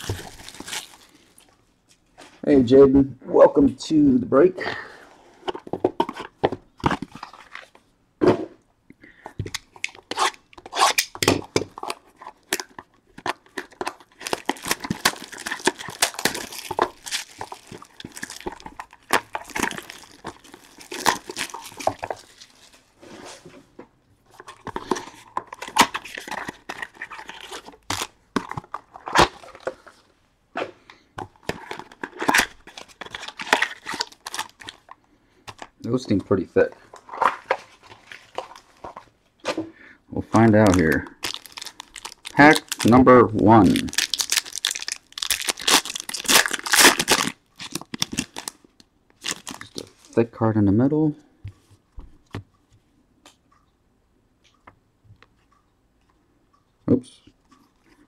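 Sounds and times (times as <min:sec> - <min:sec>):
plastic wrap tearing and crinkling: 0:00.0 - 0:01.4, 0:10.0 - 0:22.8, 0:31.6 - 0:34.9, 0:40.5 - 0:48.6, 0:49.2 - 0:50.1.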